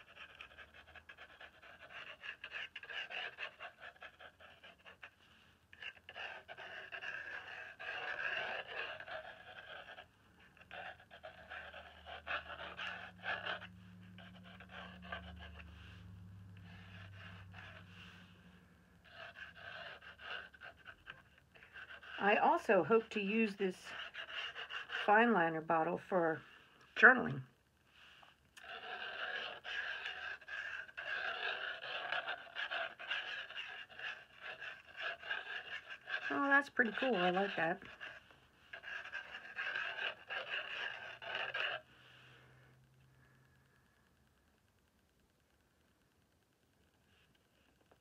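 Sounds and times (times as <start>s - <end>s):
pen tip scratching on paper: 0.0s - 16.0s, 19.1s - 25.6s, 28.6s - 41.8s
panting breaths: 0.0s - 25.5s, 28.2s - 42.0s
low steady hum: 9.0s - 24.0s.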